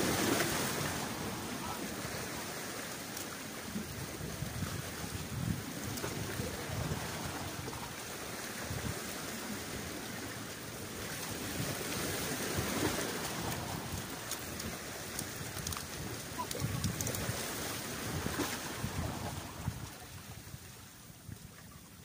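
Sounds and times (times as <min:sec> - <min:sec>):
waves washing against rocks: 0:00.0 - 0:21.5
light ticks: 0:03.0 - 0:03.4, 0:13.9 - 0:17.4
wind buffeting the microphone: 0:03.6 - 0:22.0.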